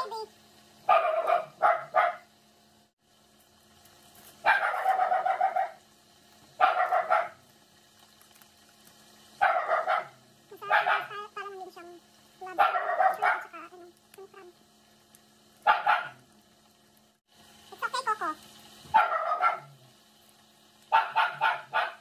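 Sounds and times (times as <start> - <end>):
dog barking: 0.8 - 2.3, 4.4 - 5.8, 6.6 - 7.4, 9.4 - 11.2, 12.5 - 13.6, 15.6 - 16.2, 18.9 - 19.8, 20.9 - 22.0.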